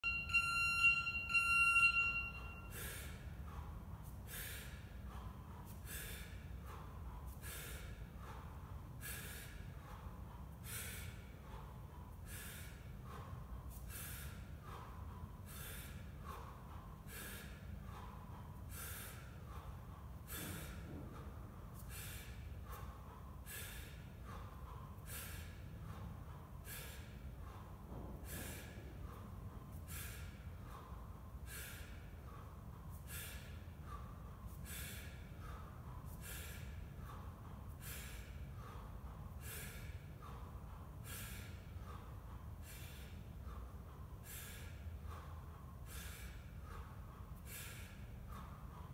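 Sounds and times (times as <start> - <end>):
electronic beeps: 0.0 - 2.7
sharp forceful breaths: 0.0 - 48.9.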